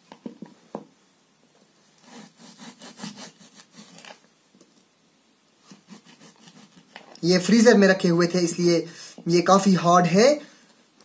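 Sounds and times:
knife sawing on plastic board: 0:02.0 - 0:04.2, 0:05.7 - 0:07.0.

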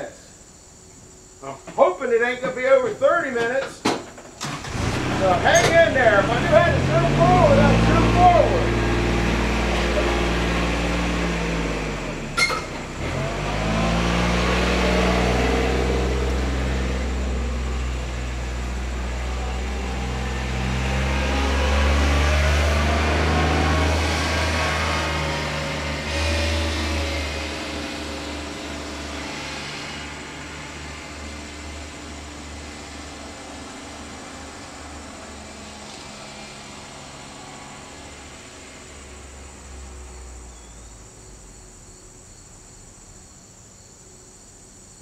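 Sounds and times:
engine running and driving off: 0:03.4 - 0:44.6.

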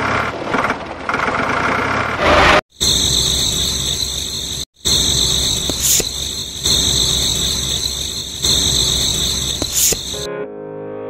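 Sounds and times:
small electric motor whining: 0:02.8 - 0:10.3
short scrape: 0:05.1 - 0:10.3.

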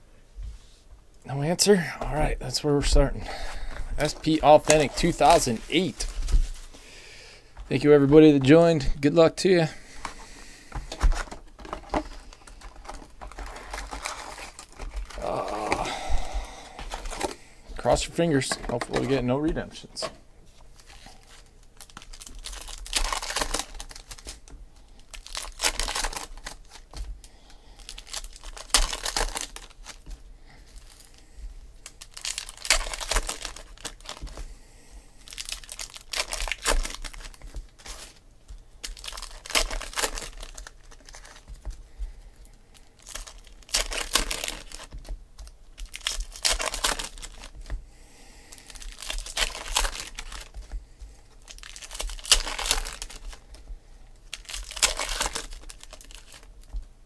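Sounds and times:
rustling of wrappers and cards: 0:02.9 - 0:57.0
foil wrappers tearing and crinkling: 0:04.0 - 0:06.6, 0:10.8 - 0:16.0, 0:16.8 - 0:17.4, 0:20.7 - 0:31.2, 0:31.8 - 0:34.5, 0:35.2 - 0:41.8, 0:42.4 - 0:47.8, 0:48.4 - 0:56.9.

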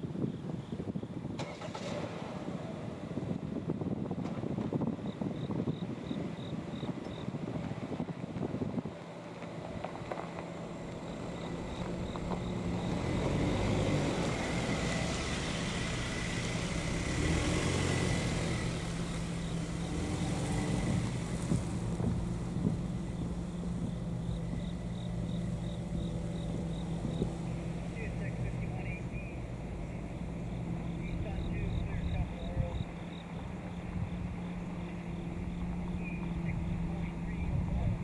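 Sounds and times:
car driving past: 0:09.2 - 0:38.0.

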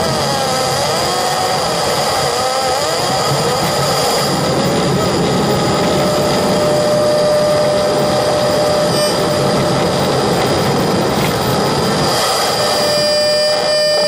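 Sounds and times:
radio static hiss and buzz: 0:03.7 - 0:14.0
thin whistling tone: 0:06.0 - 0:09.8, 0:12.3 - 0:14.0.

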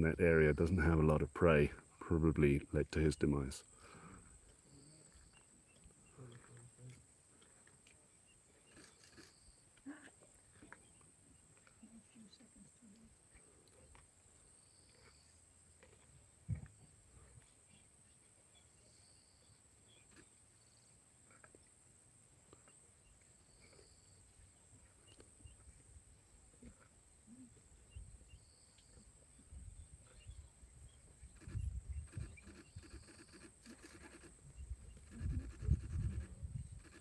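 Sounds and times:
faint insect chirps: 0:03.6 - 0:37.0
high insect drone: 0:31.3 - 0:37.0
lions low rumbling: 0:31.4 - 0:37.0.

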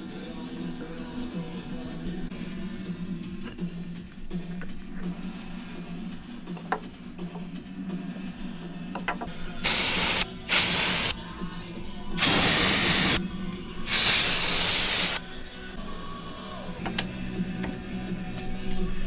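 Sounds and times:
aerosol spray hissing bursts: 0:09.6 - 0:11.2, 0:12.2 - 0:13.2, 0:13.9 - 0:15.3.

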